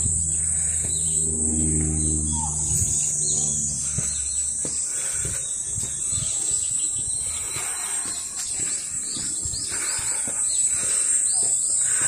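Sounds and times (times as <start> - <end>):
high-pitched insect drone: 0.0 - 7.7
footsteps on a paved path: 0.0 - 12.0.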